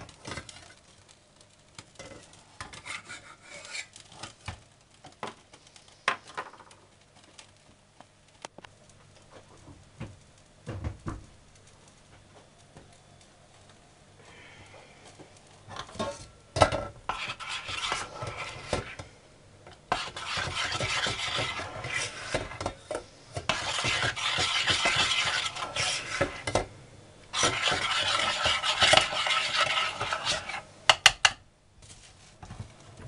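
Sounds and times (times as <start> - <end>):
metal spoon scraping glass bowl: 17.1 - 19.0, 19.9 - 22.7, 23.5 - 26.5, 27.4 - 30.6.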